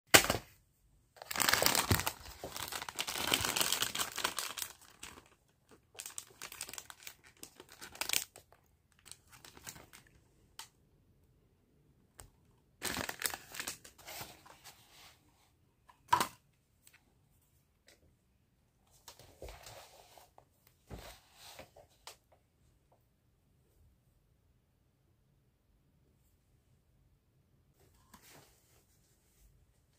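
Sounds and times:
plastic wrappers crinkling and tearing: 1.2 - 10.2, 12.8 - 14.0.

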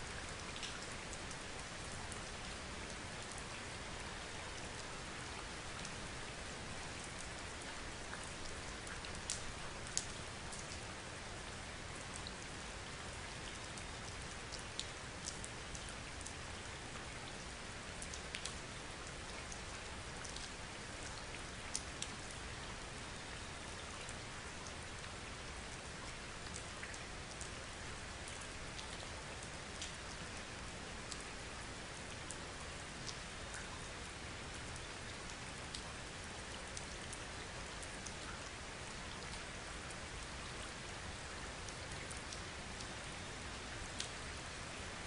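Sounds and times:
steady rain hiss: 0.0 - 45.0
raindrop ticks: 0.3 - 3.5, 8.1 - 10.8, 13.6 - 16.4, 18.0 - 22.4, 28.3 - 30.3, 33.0 - 33.8, 43.9 - 44.2.

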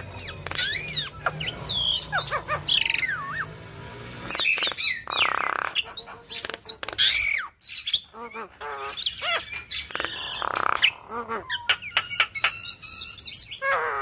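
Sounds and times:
bird singing sliding whistles: 0.0 - 3.6, 4.2 - 5.7.

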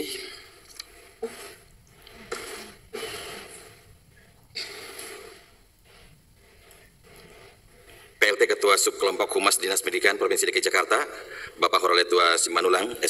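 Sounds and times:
man breathing into microphone: 11.3 - 11.6.

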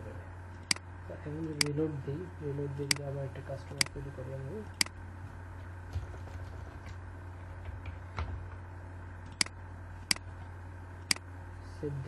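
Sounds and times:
low hum: 0.0 - 12.0
computer mouse clicks: 9.3 - 10.2.

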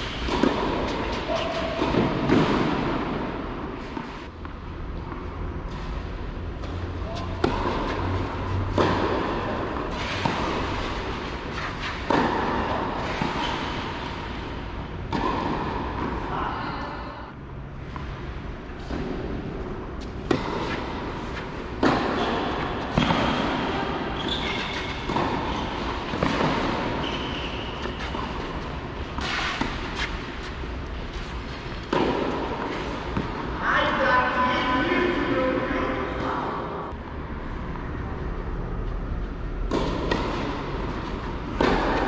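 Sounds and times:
tennis ball struck by rackets: 0.1 - 3.4, 6.6 - 14.5, 15.1 - 16.2, 20.0 - 27.2, 31.6 - 33.5, 39.6 - 42.0.

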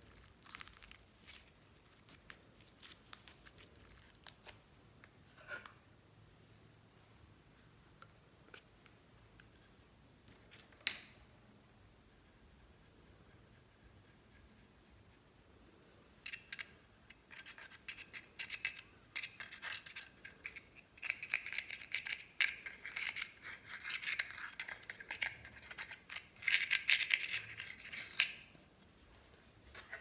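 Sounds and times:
metal spatula scratching powder: 16.2 - 28.4.

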